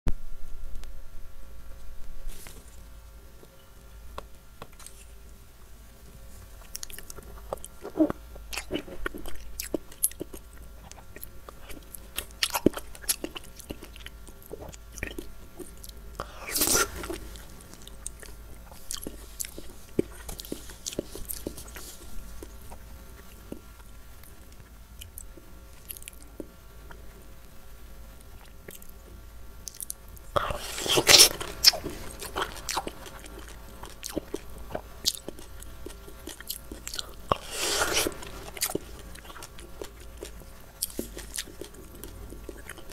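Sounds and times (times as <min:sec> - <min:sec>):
wet chewing of fruit: 0:06.6 - 0:23.6, 0:29.7 - 0:42.9
biting into fruit: 0:29.7 - 0:42.9.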